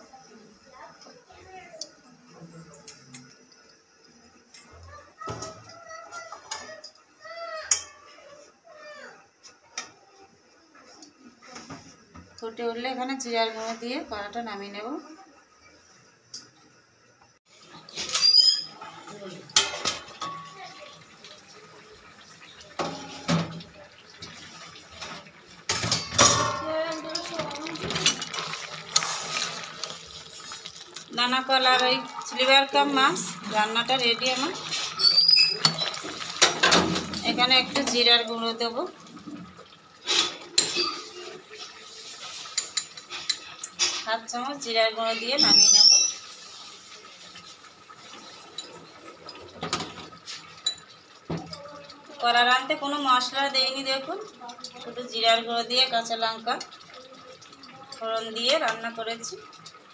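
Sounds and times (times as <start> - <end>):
pots and utensils clinking: 4.0 - 7.0, 7.6 - 8.2, 17.6 - 44.4, 45.0 - 59.9.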